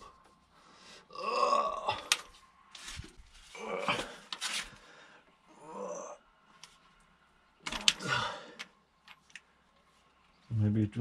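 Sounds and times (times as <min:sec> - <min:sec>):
heavy breathing: 0:03.6 - 0:05.5, 0:07.9 - 0:08.8.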